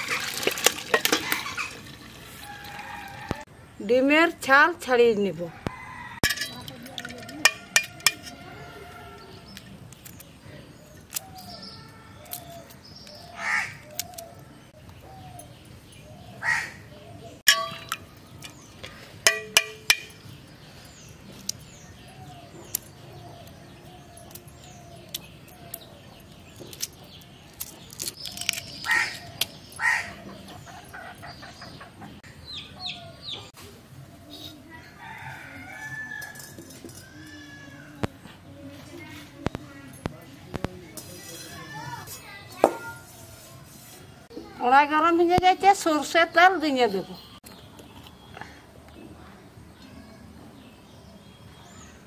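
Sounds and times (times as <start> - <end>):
small birds chirping: 3.7 - 52.0
crows cawing: 13.3 - 13.9, 16.4 - 16.8, 29.8 - 30.2
eggshell cracking: 26.6 - 29.5.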